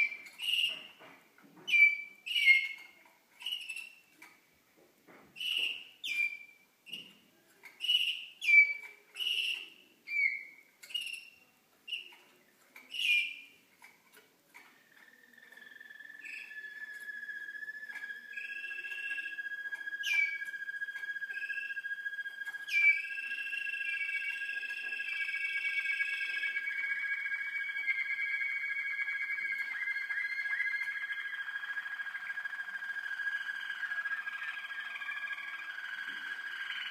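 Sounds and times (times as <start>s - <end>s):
canaries singing: 0.0s - 4.4s, 5.3s - 36.9s.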